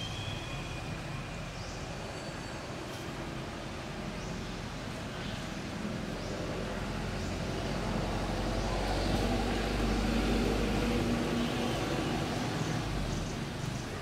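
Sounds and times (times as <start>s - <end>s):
motor vehicle passing: 5.8s - 14.0s.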